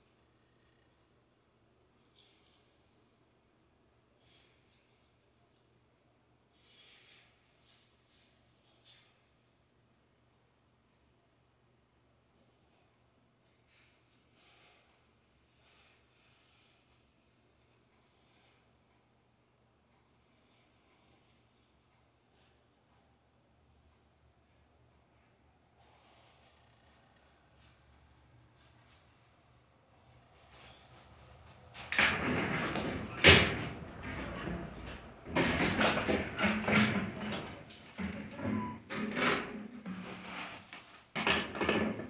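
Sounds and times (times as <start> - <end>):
knocks rattles and scrapes: 30.0 - 42.0.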